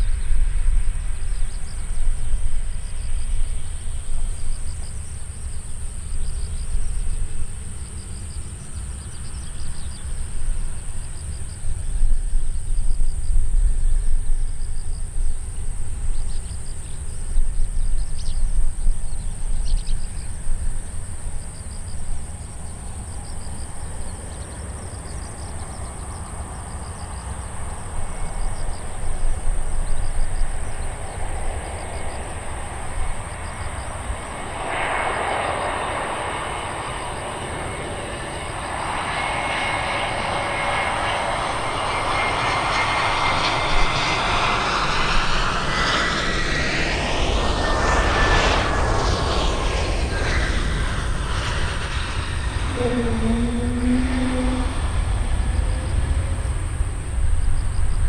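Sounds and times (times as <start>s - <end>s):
faint insect chirping: 0.0s - 50.2s, 51.2s - 58.0s
high engine whine: 0.0s - 58.0s
jet engine noise: 0.0s - 58.0s.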